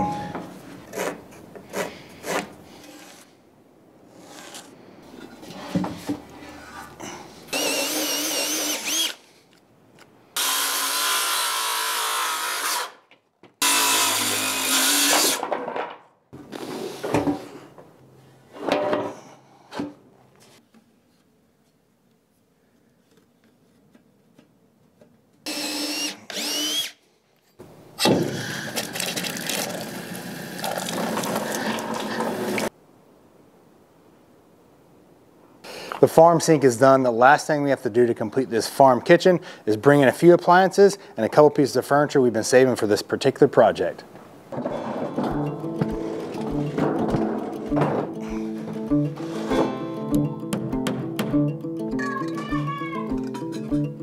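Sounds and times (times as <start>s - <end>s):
power drill whirring: 7.5s - 9.2s, 10.4s - 13.0s, 13.6s - 15.4s, 25.5s - 27.0s
parts knocking and clattering: 15.2s - 16.1s, 44.5s - 48.9s.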